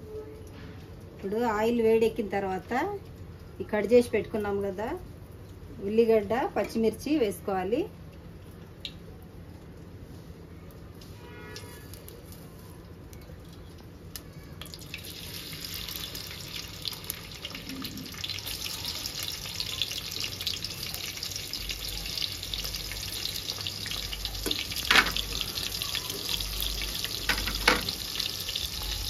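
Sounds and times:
onions sizzling in hot oil: 10.9s - 29.0s.

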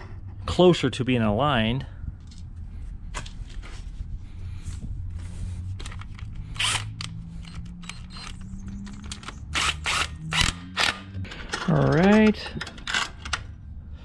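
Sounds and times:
steady low hum: 0.0s - 14.0s
tools clicking and knocking: 5.8s - 13.5s.

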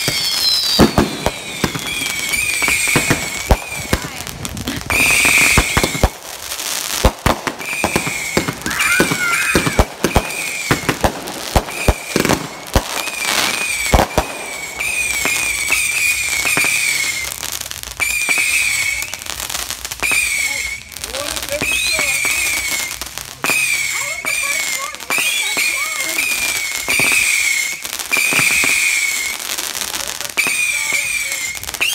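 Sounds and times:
high wavering whistles: 0.0s - 4.0s, 13.0s - 17.4s, 18.0s - 19.3s, 21.6s - 29.4s
fireworks bangs: 0.0s - 31.9s.

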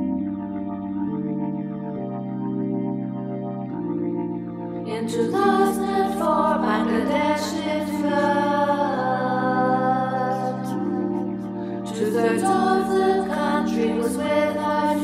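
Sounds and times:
held keyboard chords: 0.0s - 15.0s
voices singing: 4.9s - 15.0s.

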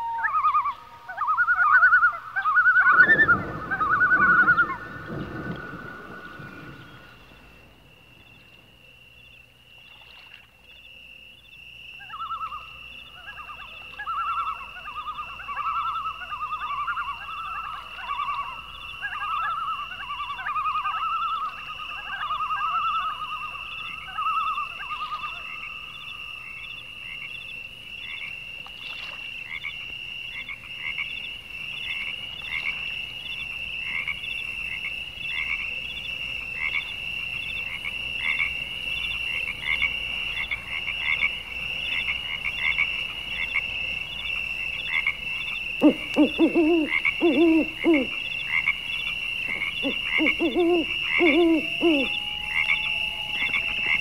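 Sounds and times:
lower animal calls: 45.8s - 48.2s, 49.6s - 54.0s.

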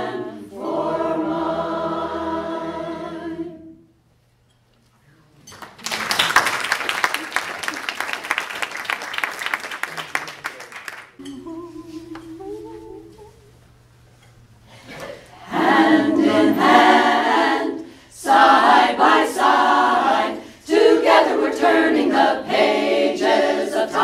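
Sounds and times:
choir singing a cappella: 0.0s - 4.0s, 15.3s - 24.0s
applause: 5.5s - 11.2s
quiet held notes: 11.2s - 14.5s.

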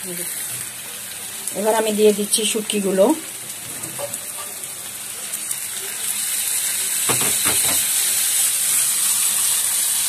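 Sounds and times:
fish sizzling in hot oil: 0.0s - 10.0s
spatula stirring pan: 3.3s - 4.8s.

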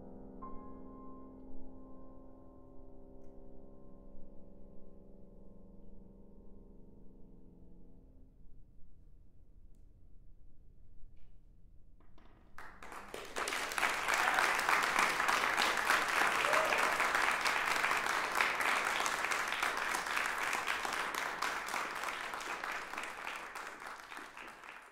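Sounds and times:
audience applauding: 12.6s - 24.9s.

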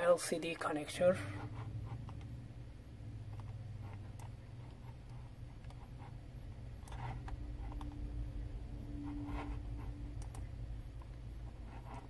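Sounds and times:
low room hum: 0.0s - 12.0s
computer mouse clicks: 1.8s - 2.3s, 3.3s - 8.0s, 9.8s - 11.2s, 11.8s - 12.0s.

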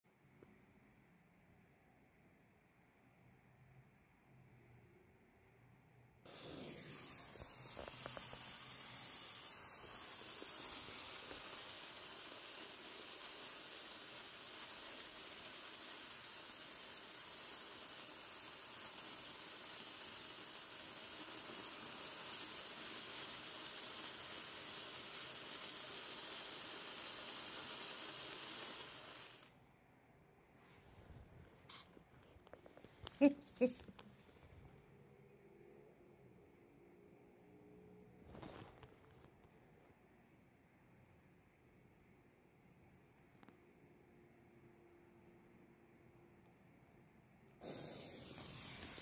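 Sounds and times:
sparkler hissing: 6.3s - 29.6s, 31.7s - 32.0s, 47.6s - 49.0s.

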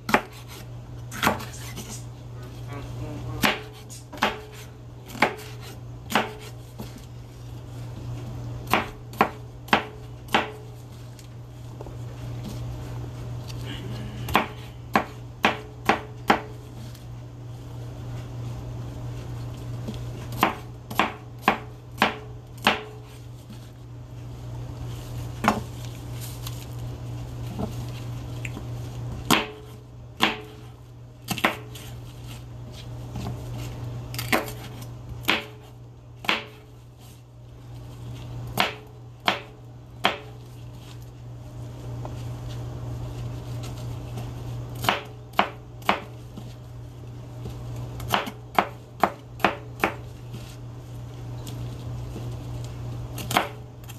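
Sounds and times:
knife chopping on plastic board: 0.0s - 1.8s, 3.4s - 7.0s, 8.7s - 10.7s, 14.3s - 16.6s, 20.3s - 23.1s, 25.4s - 25.7s, 29.2s - 30.7s, 31.3s - 31.9s, 34.2s - 36.7s, 38.5s - 40.4s, 44.8s - 46.5s, 48.0s - 50.1s
steady low hum: 0.0s - 53.9s.

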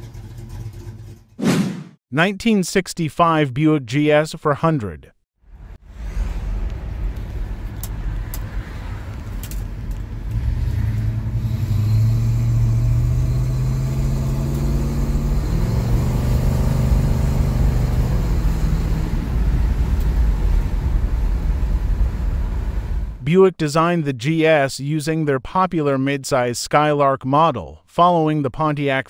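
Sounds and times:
car engine accelerating: 5.6s - 23.2s
road rumble inside car: 5.6s - 23.2s.

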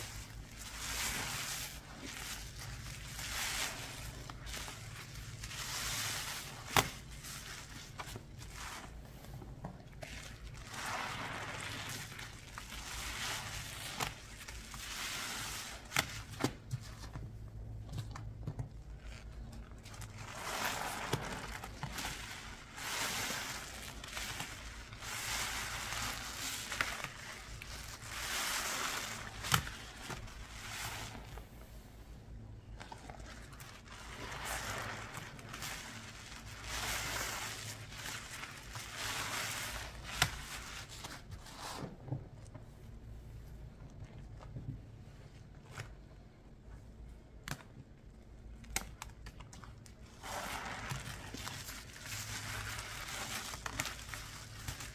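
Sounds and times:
wet scraping and squishing: 0.0s - 31.8s, 32.6s - 42.6s, 47.4s - 54.9s.

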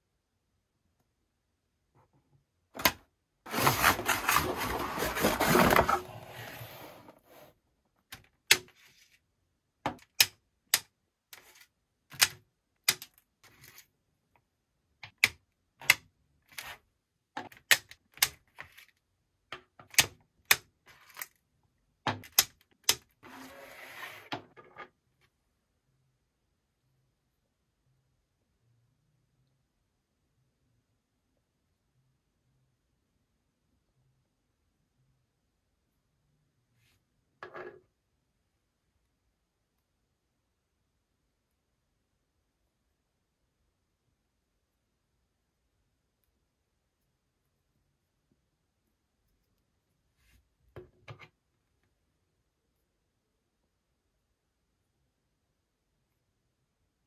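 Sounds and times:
packaging rustling: 3.5s - 6.7s.

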